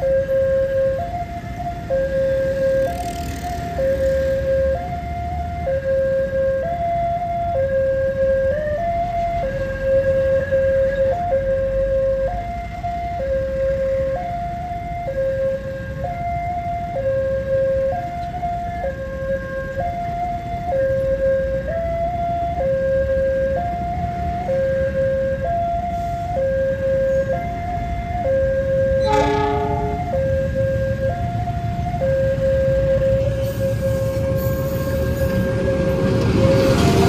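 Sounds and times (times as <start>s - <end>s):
train rumbling: 28.5s - 37.0s
train horn blast: 29.0s - 30.4s.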